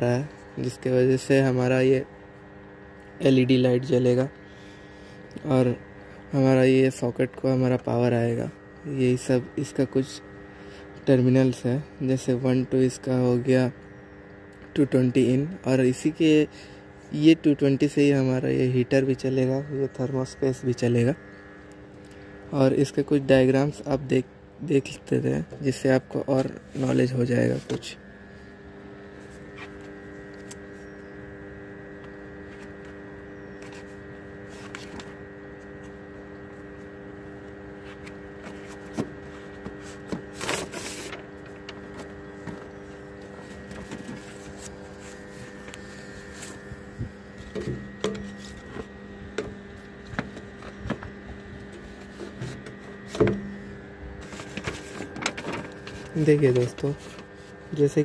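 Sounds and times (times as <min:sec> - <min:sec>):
steady electrical hum: 0:00.0 - 0:58.0
paper rustling: 0:33.6 - 0:35.2, 0:37.8 - 0:46.7, 0:54.2 - 0:57.7.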